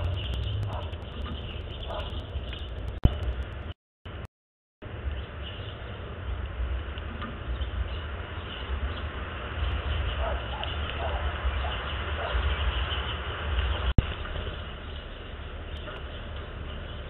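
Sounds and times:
low fluctuating rumble: 0.0s - 4.3s.

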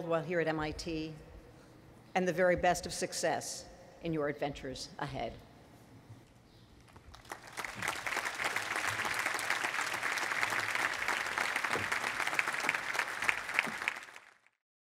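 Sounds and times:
large crowd applauding: 7.1s - 14.6s.

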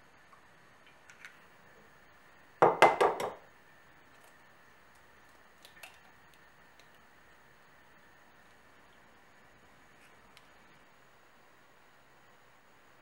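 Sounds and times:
sharp knocks on kitchenware: 2.6s - 3.4s.

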